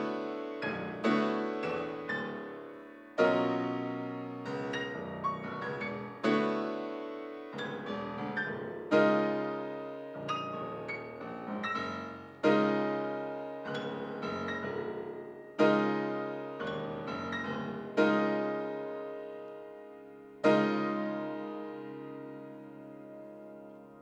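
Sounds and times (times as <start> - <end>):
grand piano chords and notes: 0.0 - 24.0.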